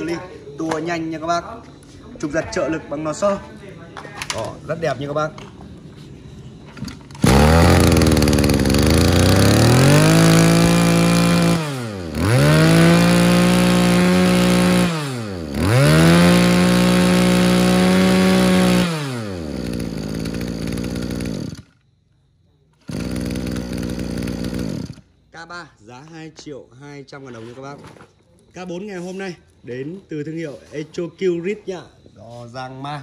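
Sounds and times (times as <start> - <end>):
brush cutter engine revving: 6.9 - 21.8, 22.8 - 25.1.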